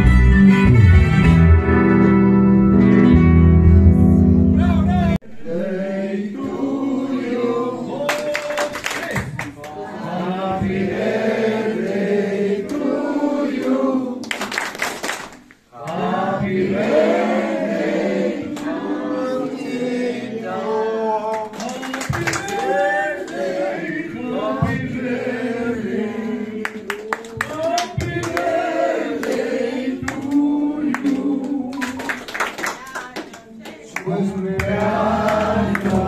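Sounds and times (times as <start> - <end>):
group of people singing: 5.2 - 8.2, 9.5 - 14.5, 15.7 - 32.3, 33.5 - 36.0.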